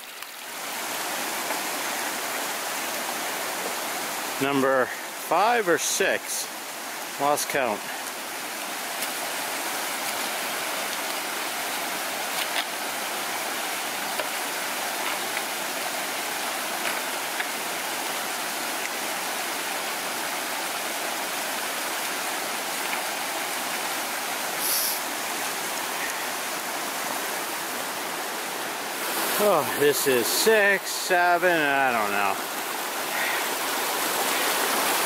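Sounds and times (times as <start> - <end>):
short hiss: 24.6 - 25.1.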